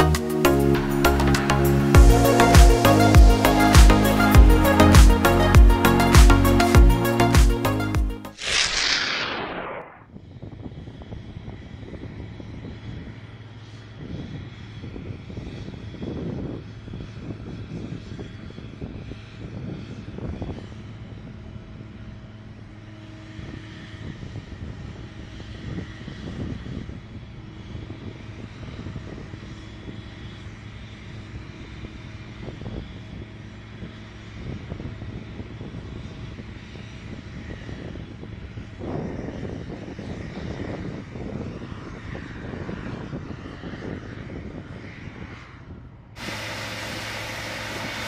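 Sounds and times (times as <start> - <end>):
engine drone: 0.0 - 10.0, 16.6 - 40.3, 41.6 - 48.0
low hum: 8.3 - 10.0, 46.2 - 48.0
surges of rushing noise: 8.3 - 10.0.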